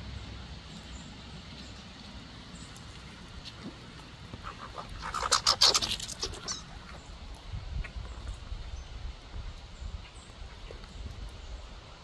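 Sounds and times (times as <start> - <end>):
squirrel chattering: 5.0 - 7.0.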